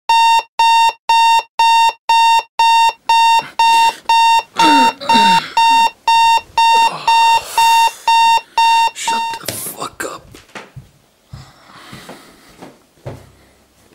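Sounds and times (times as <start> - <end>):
alarm clock beeping: 0.1 - 9.5.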